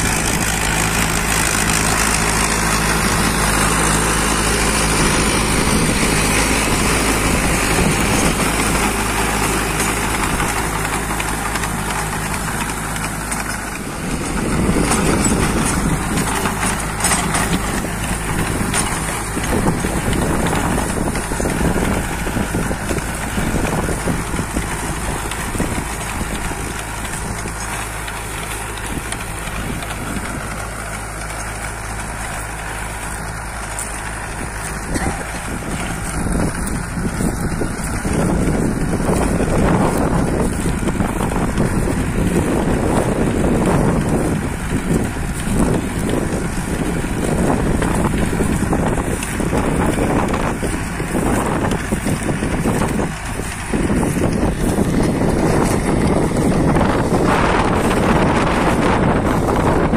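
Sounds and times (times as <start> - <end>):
tractor diesel engine under load: 0.0 - 59.9
wind buffeting microphone: 0.0 - 59.9.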